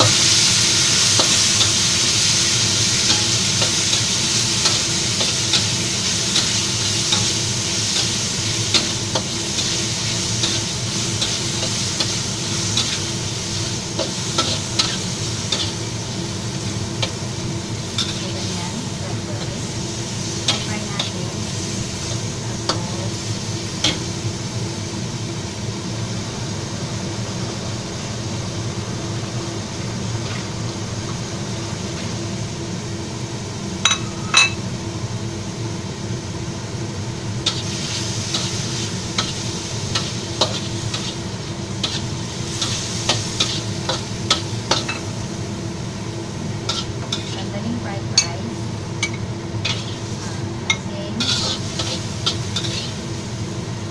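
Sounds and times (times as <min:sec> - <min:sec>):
meat sizzling in a wok: 0:00.0 - 0:53.9
metal spatula stirring and scraping: 0:46.7 - 0:47.4, 0:49.6 - 0:50.0, 0:51.2 - 0:53.0.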